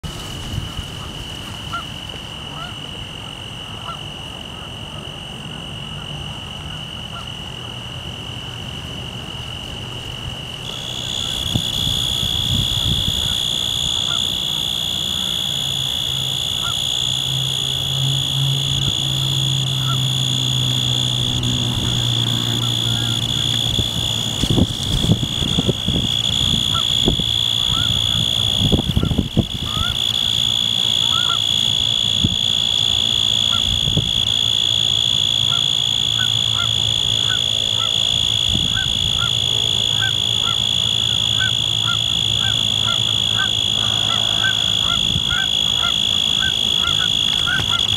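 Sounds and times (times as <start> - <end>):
wind on microphone: 0.0 - 1.6, 11.0 - 14.2, 22.9 - 30.1, 33.6 - 34.3, 38.4 - 39.4, 43.6 - 47.9
tree cricket trilling: 0.1 - 47.9
distant geese honking: 0.6 - 7.8, 10.6 - 47.9.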